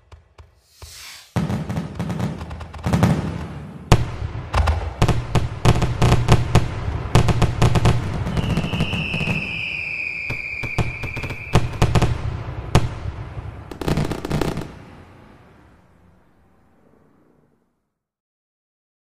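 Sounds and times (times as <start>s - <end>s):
fireworks bangs and crackles: 0.0s - 15.7s
falling firework whistle: 0.6s - 1.8s, 8.1s - 14.7s.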